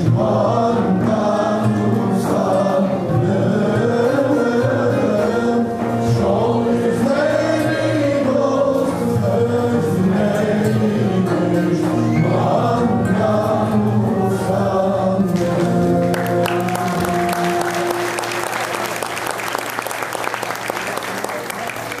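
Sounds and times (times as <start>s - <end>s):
man and choir singing folk song: 0.0s - 18.1s
audience applause: 16.0s - 22.0s.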